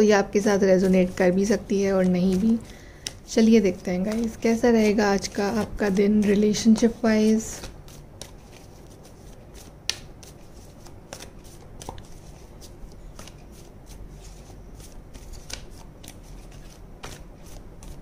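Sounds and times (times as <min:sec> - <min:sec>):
cards shuffled by hand: 0:00.7 - 0:18.0.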